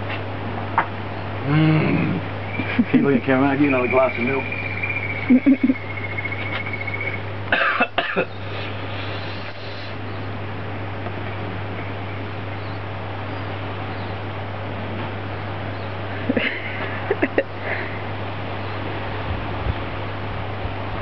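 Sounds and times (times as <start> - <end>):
background hiss: 0.7 - 12.0
thin high steady tone: 2.5 - 8.2
man coughing: 7.5 - 8.3.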